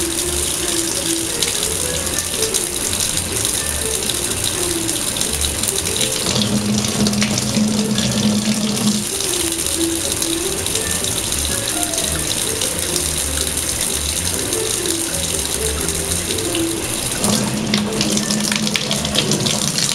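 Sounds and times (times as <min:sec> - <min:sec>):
music playing: 0:00.0 - 0:19.9
tap running into steel sink: 0:06.1 - 0:09.1.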